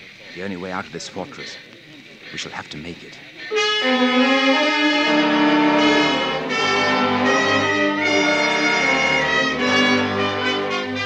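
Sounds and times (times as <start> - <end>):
brass orchestral held chords: 3.5 - 11.0.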